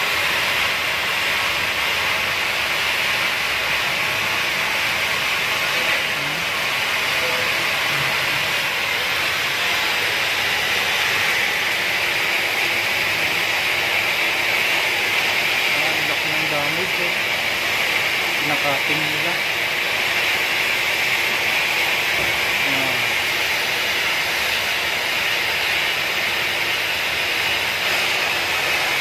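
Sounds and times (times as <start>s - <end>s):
cutting torch hissing: 0.0s - 29.0s.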